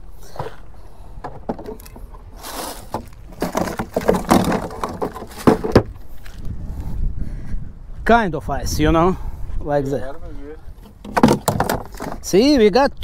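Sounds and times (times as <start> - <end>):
plastic cooler lid opening: 1.3 - 5.9
knocks and clatters: 2.9 - 6.0, 10.8 - 12.3.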